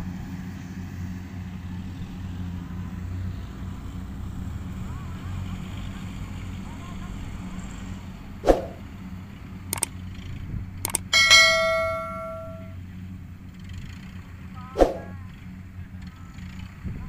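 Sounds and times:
combine harvester droning: 1.9s - 16.8s
whoosh: 8.4s - 8.8s, 14.8s - 15.2s
sharp clicks: 10.9s - 12.7s
bell ding: 10.9s - 12.8s.

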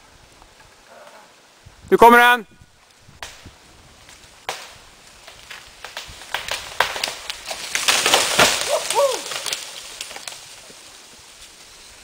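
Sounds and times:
wood cracking and branches snapping: 2.8s - 11.7s
tree trunk thudding on ground: 4.5s - 10.6s.

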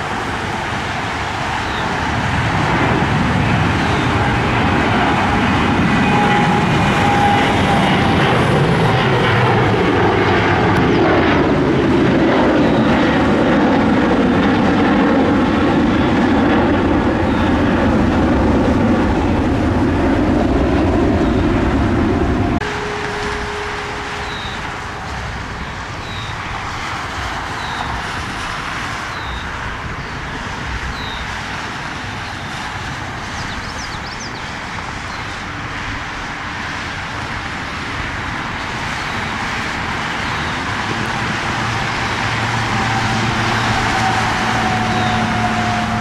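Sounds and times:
jet engine rushing: 0.0s - 46.0s
whining tone: 3.7s - 13.4s, 16.0s - 26.5s, 40.6s - 46.0s.

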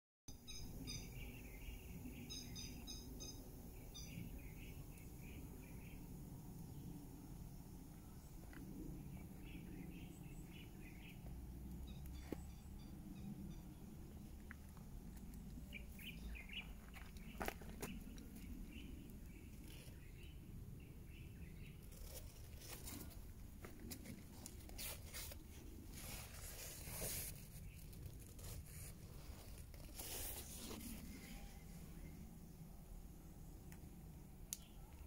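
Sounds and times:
faint bird chirps: 0.3s - 6.1s
leaves brushing: 21.9s - 31.7s.

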